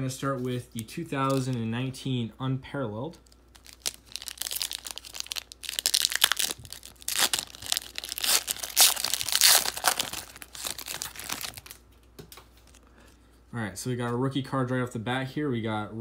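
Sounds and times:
plastic wrapper crinkling and tearing: 1.2 - 1.7, 3.2 - 12.0.

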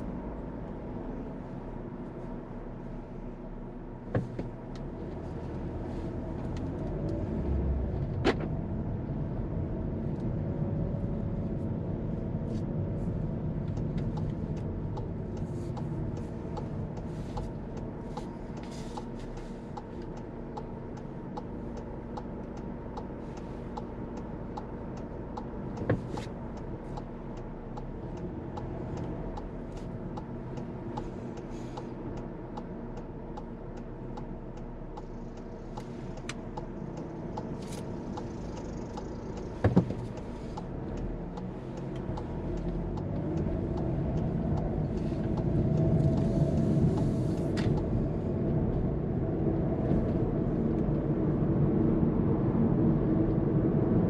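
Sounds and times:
car engine and road noise: 0.0 - 54.0
turn signal ticking: 0.0 - 54.0.

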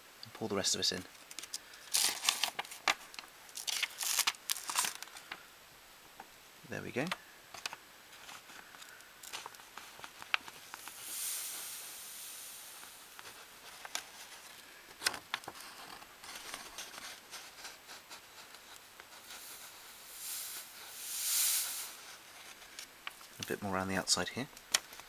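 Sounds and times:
paper handling: 1.3 - 5.3
powder hissing off paper: 8.2 - 14.8, 16.8 - 23.6.

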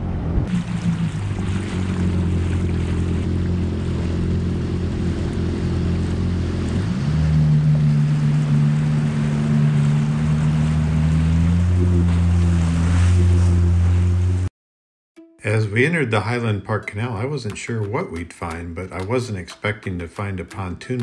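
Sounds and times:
watercraft engine running: 0.0 - 14.5
water rushing and splashing: 0.3 - 14.5.

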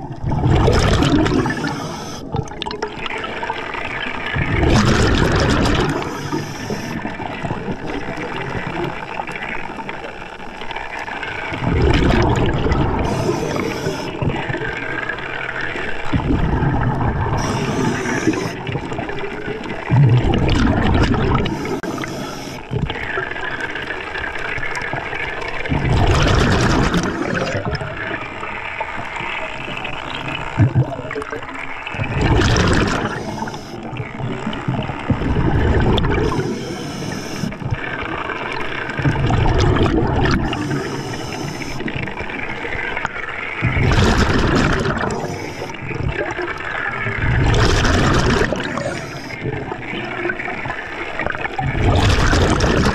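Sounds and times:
underwater bubbles gurgling: 0.0 - 52.9
regulator inhale hiss: 1.4 - 2.3, 5.9 - 7.1, 13.0 - 14.2, 17.4 - 18.6, 21.4 - 22.7, 33.0 - 33.8, 36.2 - 37.6, 40.4 - 41.9, 45.1 - 45.8, 48.6 - 49.5.

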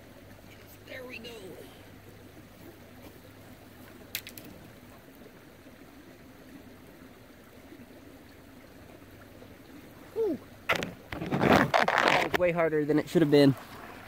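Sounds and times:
creek trickling into a pool: 0.0 - 14.0.

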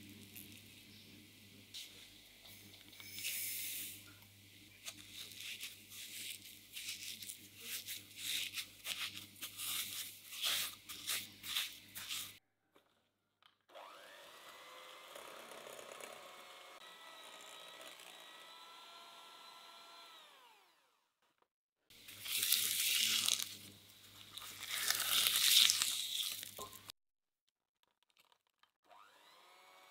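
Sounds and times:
spatula scraping bowl: 5.2 - 12.4
electric hand mixer whining: 13.7 - 21.0, 28.9 - 29.9
sugar poured into glass bowl: 22.2 - 26.9.

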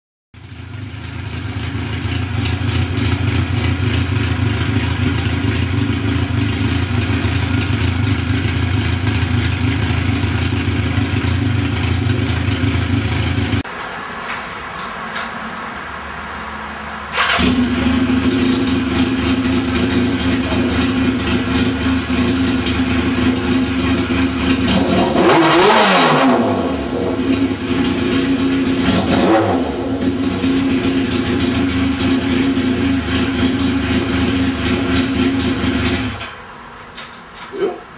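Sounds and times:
motorcycle engine idling: 0.4 - 13.6, 17.2 - 24.8, 30.1 - 36.2
engine revving: 16.6 - 36.3.

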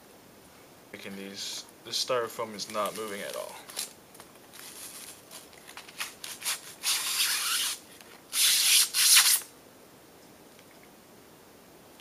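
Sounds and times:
styrofoam scraping against cardboard: 4.5 - 7.8.

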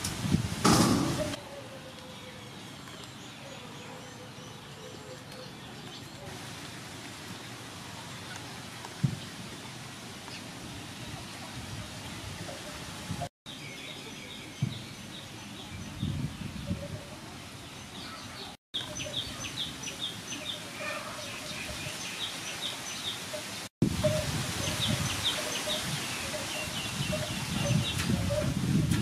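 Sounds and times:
outdoor background hiss and rumble: 0.0 - 29.0
small birds chirping: 13.5 - 28.6.

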